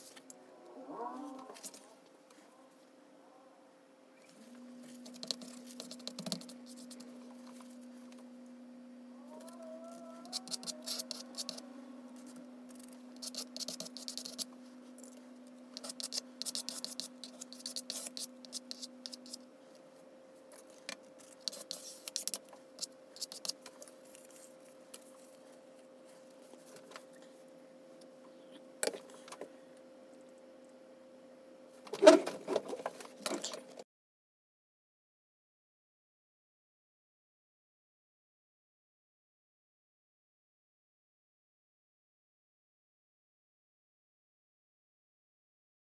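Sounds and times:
faint steady hum: 0.0 - 33.8
plastic card scraping paint: 4.9 - 7.1, 10.2 - 11.6, 12.2 - 14.5, 15.8 - 19.4, 20.7 - 25.2.

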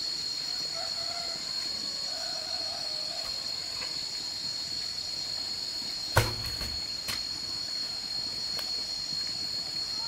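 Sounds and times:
insects buzzing: 0.0 - 10.0
log thudding onto wood: 6.1 - 7.3.

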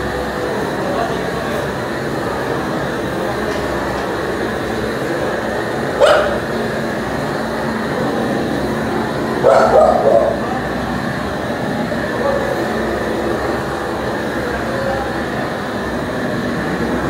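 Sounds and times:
steady rushing noise: 0.0 - 17.0
dog barking: 6.0 - 6.4, 9.4 - 10.4.

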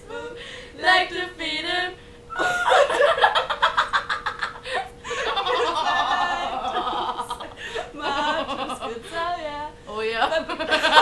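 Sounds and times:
women laughing: 2.4 - 9.4, 10.3 - 11.0.

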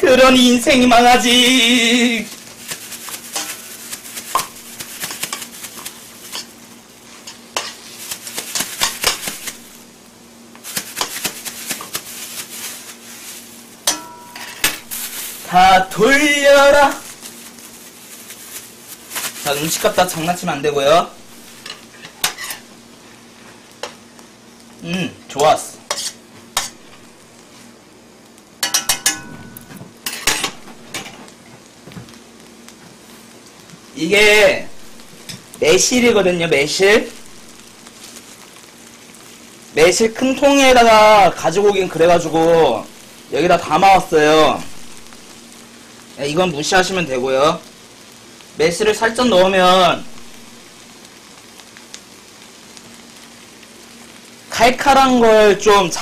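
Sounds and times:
faint sizzle: 0.0 - 56.0
metal utensil scraping a frying pan: 3.3 - 5.5, 7.2 - 9.4, 13.9 - 15.3, 21.6 - 22.6, 25.9 - 26.9, 28.6 - 31.1.

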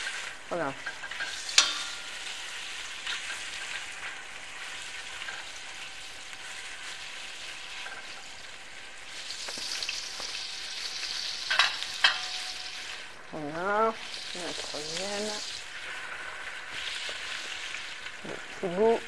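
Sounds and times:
meat sizzling in hot oil: 0.0 - 19.0.

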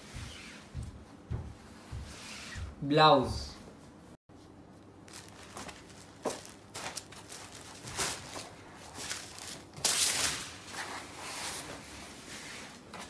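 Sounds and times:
fabric rustling and swishing: 0.0 - 0.9, 1.7 - 2.8, 5.1 - 13.0.

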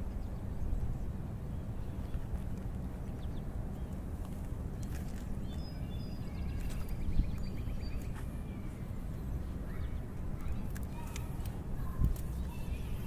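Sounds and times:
small birds chirping: 0.0 - 13.0
wind on microphone: 9.6 - 13.0.

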